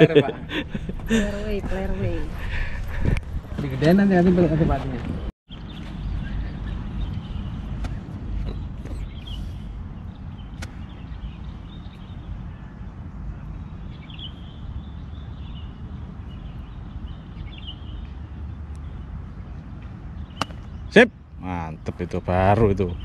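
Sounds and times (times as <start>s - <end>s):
golf club striking ball: 20.4s - 20.8s.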